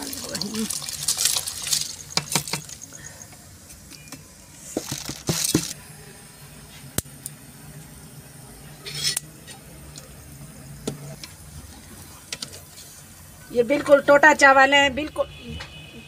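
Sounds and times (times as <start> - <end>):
utensils clinking against pot: 8.8 - 9.6.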